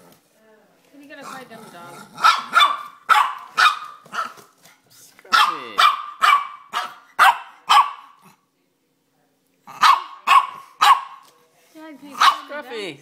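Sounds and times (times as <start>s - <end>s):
small dog yapping: 2.2s - 4.5s, 5.3s - 8.3s, 9.7s - 11.2s, 12.2s - 12.6s.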